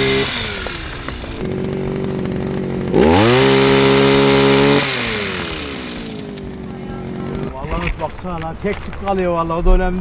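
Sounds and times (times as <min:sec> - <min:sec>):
small engine revving: 0:00.0 - 0:07.9.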